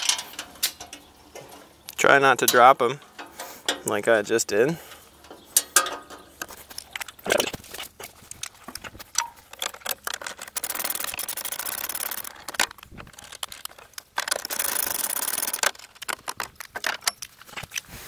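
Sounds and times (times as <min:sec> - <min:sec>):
metal clinks of loose nuts: 0:04.8 - 0:17.8
ratchet wrench clicking: 0:09.8 - 0:12.6, 0:14.2 - 0:16.2.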